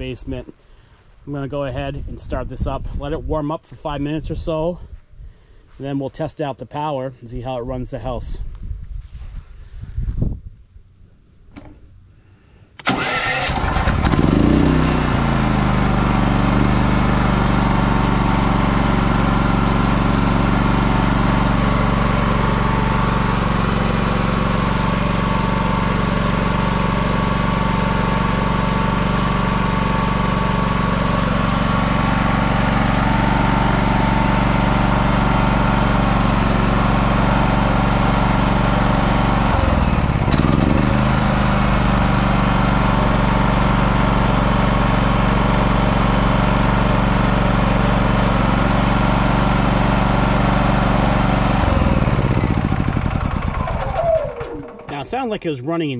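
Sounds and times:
generator engine starting and running: 11.4 - 55.6.

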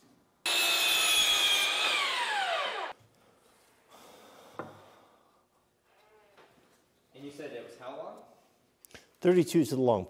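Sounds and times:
miter saw whining: 0.5 - 3.0
saw blade winding down: 0.5 - 3.0.

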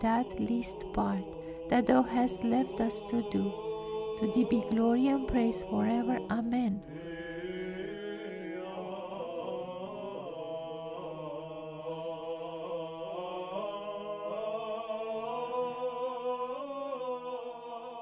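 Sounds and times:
men chanting with held drone: 0.0 - 18.0.

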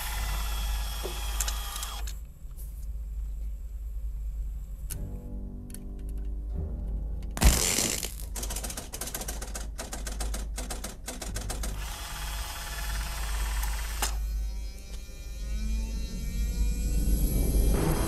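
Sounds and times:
mechanical clicking and ratcheting: 0.0 - 2.2, 7.4 - 14.2
whirring hiss: 0.0 - 2.2
wavering electronic hum: 13.1 - 18.0.

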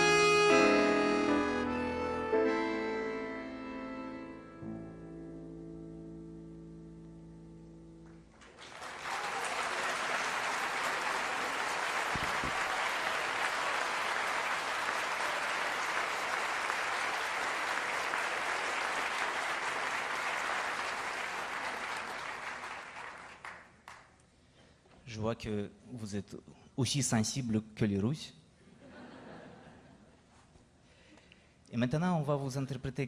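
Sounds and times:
accordion and piano chord: 0.0 - 8.3
audience applauding: 8.3 - 24.1.

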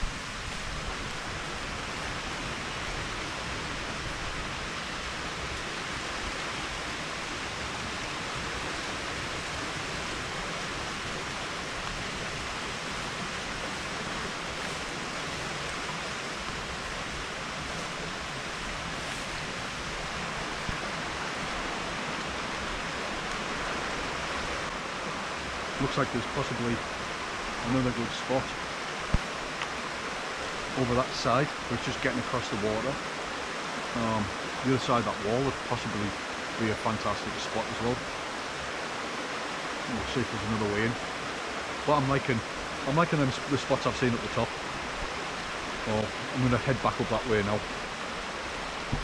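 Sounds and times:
stream running: 0.0 - 49.0.

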